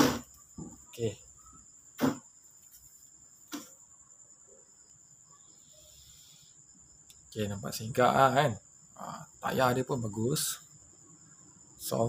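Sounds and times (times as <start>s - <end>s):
loud thump: 0.0s - 0.8s, 2.0s - 2.2s
cricket trilling: 0.0s - 12.0s.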